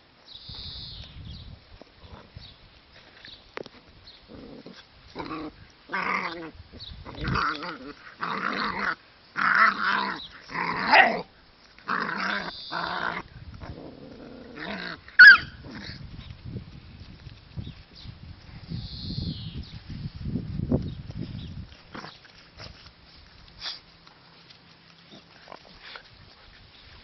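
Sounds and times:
puppies growling: 0:04.2 - 0:16.0
puppy sharp high cry: 0:15.2 - 0:15.6.

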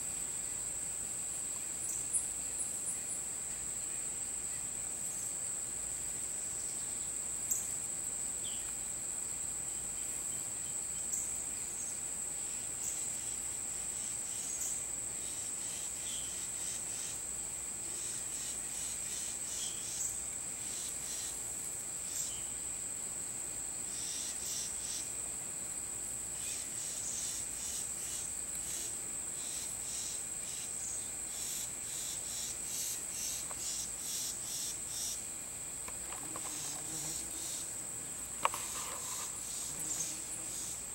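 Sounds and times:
insects droning: 0:00.0 - 0:40.9.

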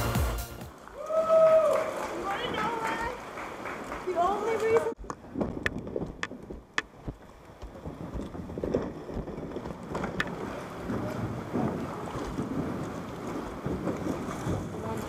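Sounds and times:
river water splashing: 0:00.0 - 0:15.0
wind noise on microphone: 0:04.9 - 0:15.0.

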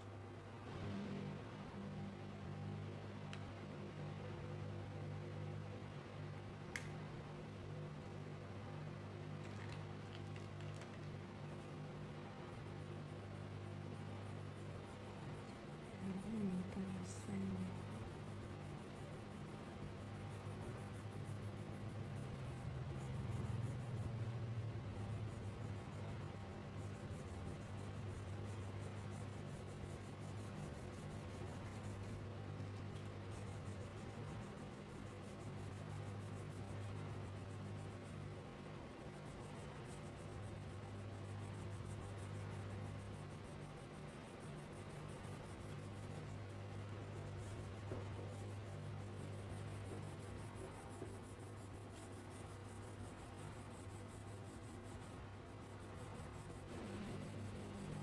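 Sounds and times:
low electrical hum: 0:00.0 - 0:58.0
crayon scratching on paper: 0:12.6 - 0:58.0.

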